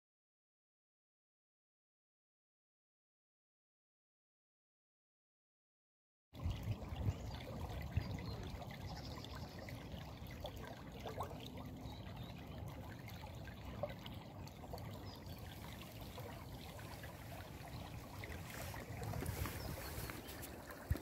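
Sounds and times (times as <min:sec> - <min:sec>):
stream babbling over stones: 0:06.8 - 0:21.0.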